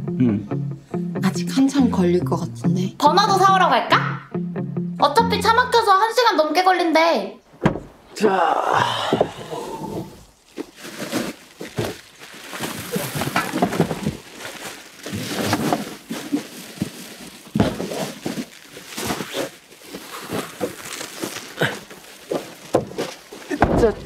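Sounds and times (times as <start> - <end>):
goods clunking: 7.5 - 8.1, 8.9 - 24.0
plastic bags rustling: 9.9 - 24.0.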